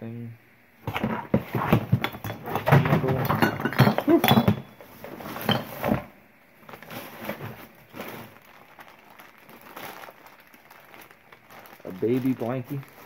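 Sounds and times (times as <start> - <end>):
glass and ceramic items clinking: 1.9 - 4.8, 5.4 - 5.9.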